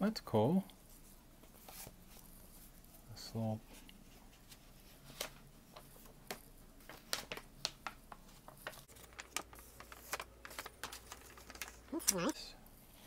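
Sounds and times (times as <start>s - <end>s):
paper rustling and crinkling: 3.7s - 12.4s.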